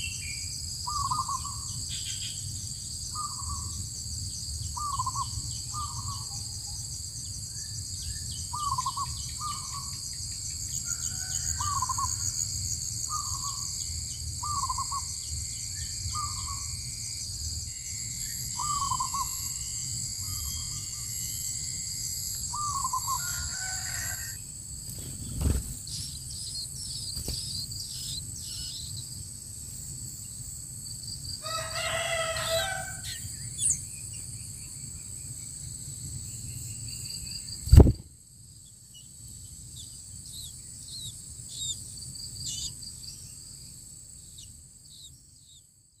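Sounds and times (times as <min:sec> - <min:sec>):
high insect drone: 0:00.0 - 0:46.0
rooster crowing: 0:10.8 - 0:12.5, 0:22.8 - 0:24.4, 0:31.4 - 0:33.3
sharp loud thump: 0:37.7 - 0:38.1.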